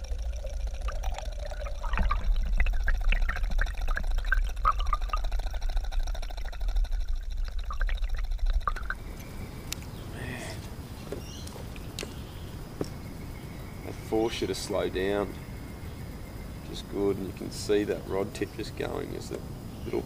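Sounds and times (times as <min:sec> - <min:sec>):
bubbly pops: 0:00.0 - 0:09.2
water rushing and gurgling: 0:00.0 - 0:09.2.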